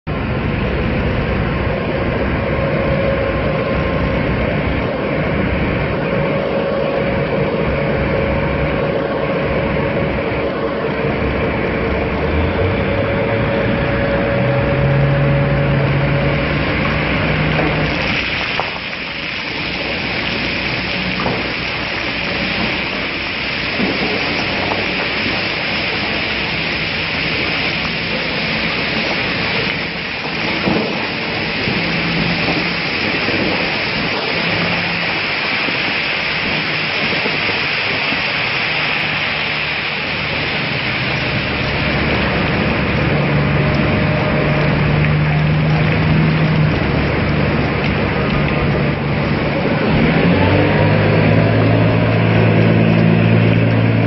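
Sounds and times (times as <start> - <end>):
truck diesel engine running: 0.1 - 54.0
rock pouring into hopper: 16.8 - 42.8.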